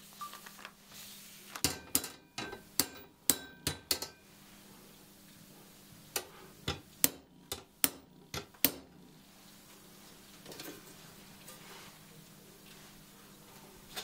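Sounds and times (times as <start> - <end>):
hammer tapping steel saw blade: 1.6 - 4.2.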